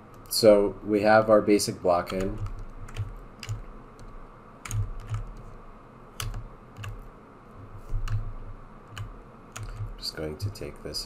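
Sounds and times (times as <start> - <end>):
keyboard keystrokes clicking: 2.0 - 5.5, 6.2 - 7.0, 7.9 - 8.3, 8.9 - 10.1.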